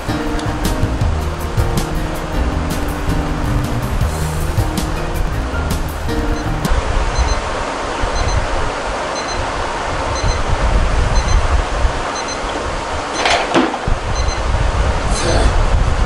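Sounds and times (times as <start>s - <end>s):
steady rushing noise: 0.0s - 16.0s
faint double beeps: 7.2s - 7.4s, 8.2s - 8.4s, 9.2s - 9.4s, 10.2s - 10.4s, 11.2s - 11.4s, 12.2s - 12.5s, 14.2s - 14.4s.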